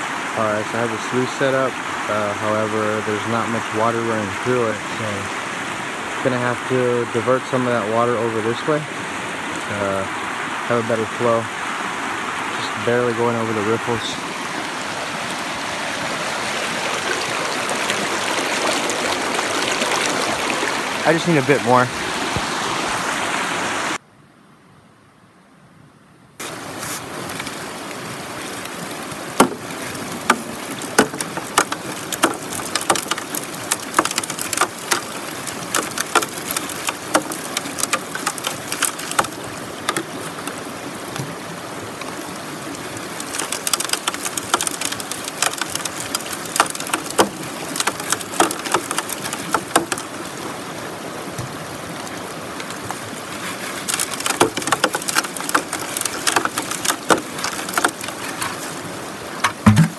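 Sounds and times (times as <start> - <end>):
water rushing through sluice box: 0.0 - 24.0, 26.4 - 59.9
gravel clattering on metal: 29.4 - 40.5, 43.2 - 50.0, 53.4 - 58.6.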